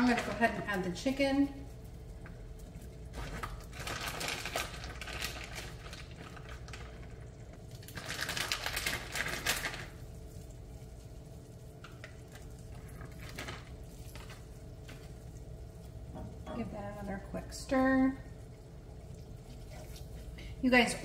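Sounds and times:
plastic bag crinkling: 0:02.5 - 0:15.9.

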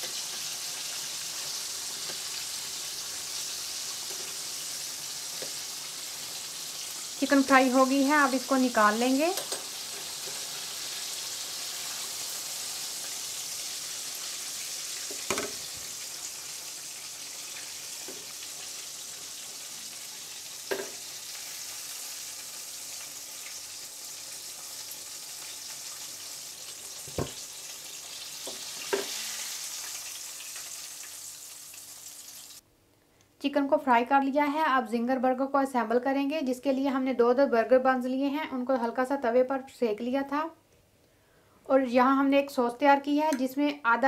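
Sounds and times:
chicken deep-frying in oil: 0:00.0 - 0:32.6
metal tongs clicking on pan: 0:09.4 - 0:10.4.

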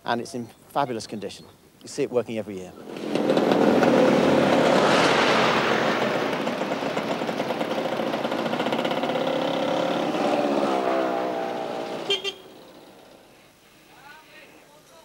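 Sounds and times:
truck engine passing: 0:02.8 - 0:13.3.

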